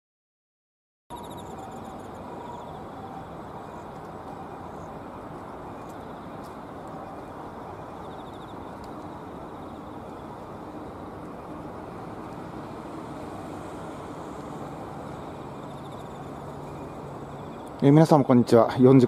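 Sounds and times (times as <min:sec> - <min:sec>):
faint high trills: 0:01.1 - 0:06.3
road traffic hum: 0:01.1 - 0:19.0.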